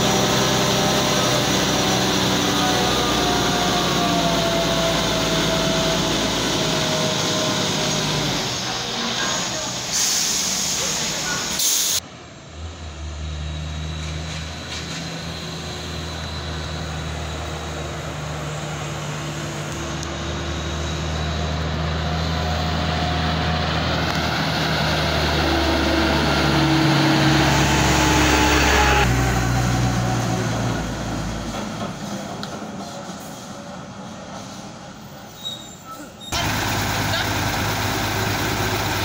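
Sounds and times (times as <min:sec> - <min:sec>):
diesel truck driving past: 0:00.0 - 0:35.6, 0:36.3 - 0:39.0.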